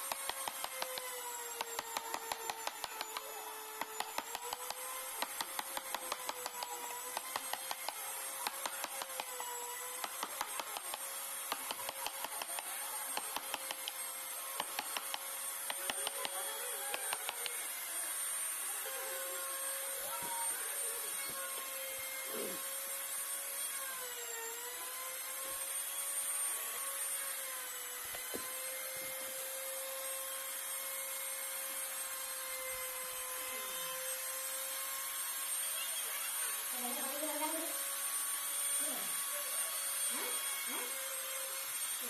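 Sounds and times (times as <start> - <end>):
chisel tapping on wood: 0.0 - 17.6.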